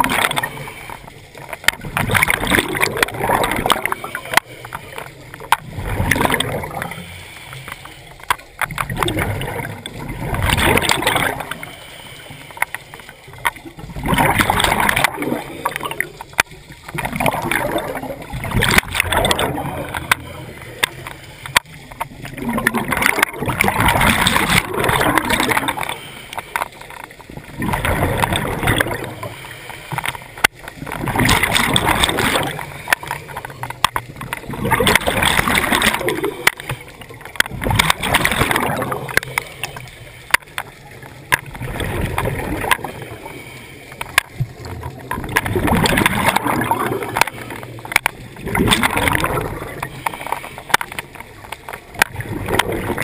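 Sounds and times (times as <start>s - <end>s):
rush of exhaled bubbles: 0.0s - 53.0s
small clicks: 0.0s - 53.0s
scuba regulator breathing: 6.8s - 8.3s, 11.4s - 13.2s, 25.7s - 27.0s, 29.0s - 30.4s, 42.7s - 44.2s, 49.6s - 51.2s.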